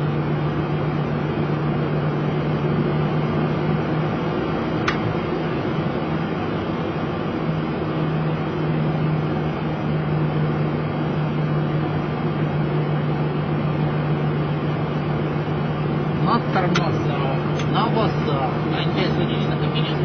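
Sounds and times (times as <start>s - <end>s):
jet engines idling in cockpit: 0.0s - 20.0s
low steady hum: 0.0s - 20.0s.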